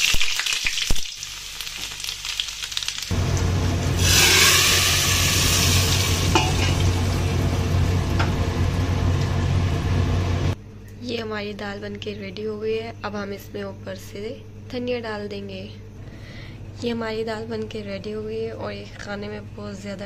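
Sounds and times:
oil crackling in iron pan: 0:00.0 - 0:09.8
loud burst of sizzling: 0:00.0 - 0:10.6
steady low hum: 0:03.1 - 0:20.0.

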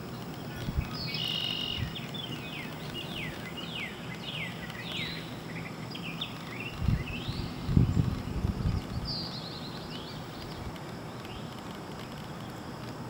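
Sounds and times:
songbird whistling: 0:00.8 - 0:10.6.

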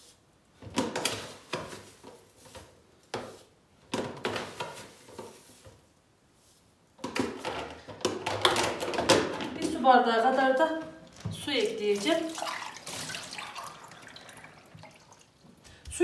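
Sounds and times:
plastic rustling: 0:00.0 - 0:15.7
plastic clatter: 0:07.0 - 0:09.8.

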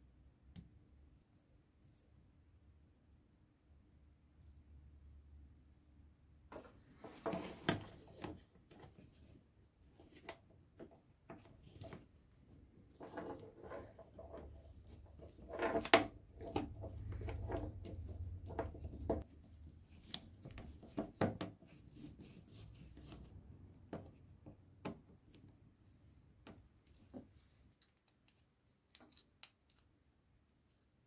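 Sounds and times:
plastic parts clicking and rubbing: 0:26.8 - 0:30.1.

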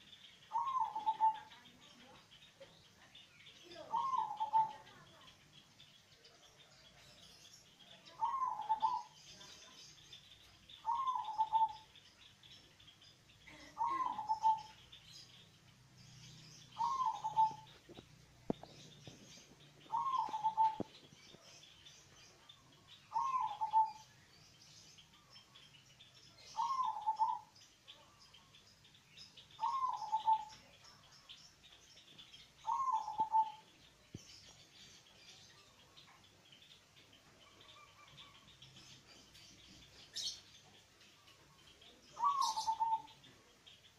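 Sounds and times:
small birds chirping: 0:00.0 - 0:43.9
dove cooing: 0:00.5 - 0:01.6, 0:03.9 - 0:05.0, 0:08.2 - 0:09.2, 0:10.8 - 0:11.9, 0:13.5 - 0:14.8, 0:16.8 - 0:17.8, 0:19.8 - 0:21.0, 0:23.1 - 0:24.1, 0:26.5 - 0:27.5, 0:29.6 - 0:30.5, 0:32.6 - 0:33.6, 0:42.2 - 0:43.2.

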